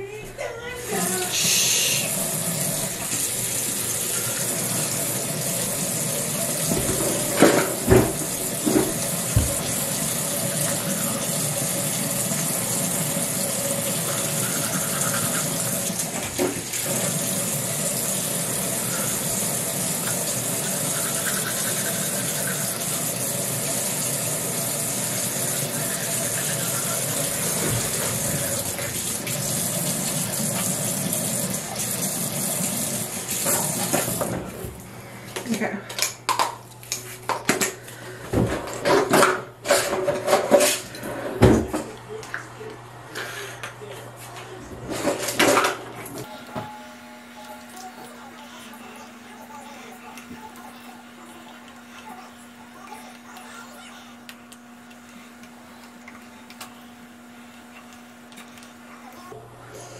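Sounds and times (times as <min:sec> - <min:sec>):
water running from tap: 0:00.8 - 0:34.5.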